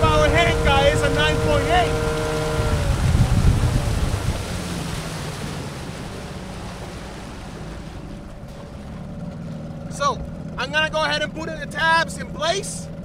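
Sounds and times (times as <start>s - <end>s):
wind on microphone: 0.0s - 6.0s
outboard motor running: 0.0s - 13.0s
water rushing past hull: 0.0s - 13.0s.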